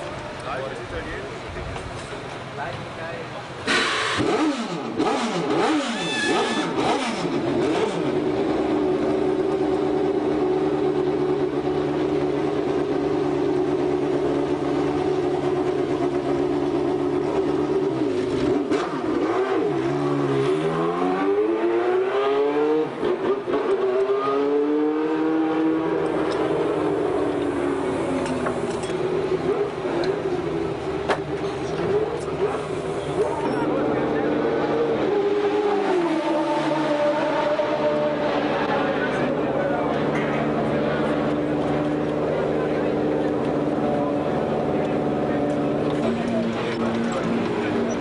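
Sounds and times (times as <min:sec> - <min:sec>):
race car engine idling and revving: 0:00.0 - 0:48.0.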